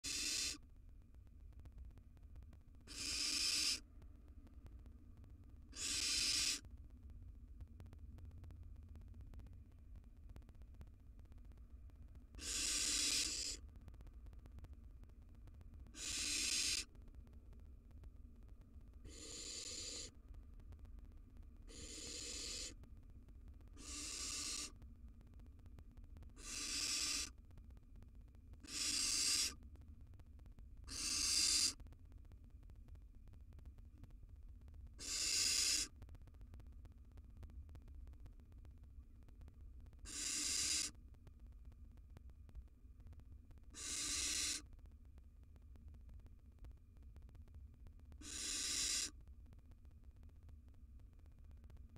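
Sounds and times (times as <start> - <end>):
owl chicks hissing snore calls: 0.0 - 0.6, 2.9 - 3.8, 5.7 - 6.6, 12.4 - 13.6, 16.0 - 16.9, 19.0 - 20.1, 21.7 - 22.8, 23.8 - 24.8, 26.4 - 27.4, 28.6 - 29.6, 30.9 - 31.8, 35.0 - 36.0, 40.0 - 41.0, 43.7 - 44.7, 48.2 - 49.2.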